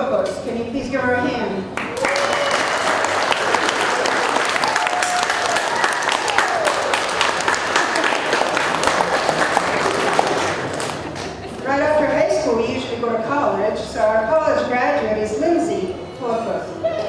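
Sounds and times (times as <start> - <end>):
crowd applauding: 1.8 - 11.6.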